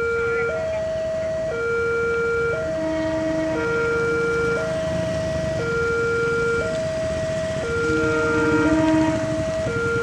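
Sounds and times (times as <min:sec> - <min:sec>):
two-tone crossing warning siren: 0:00.0 - 0:10.0.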